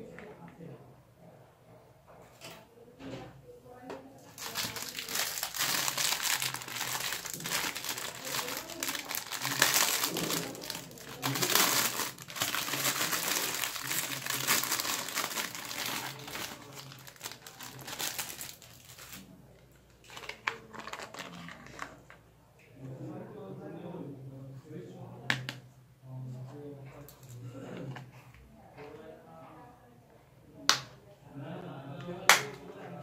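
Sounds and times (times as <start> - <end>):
plastic bag crinkling: 4.3 - 19.3, 20.0 - 21.9.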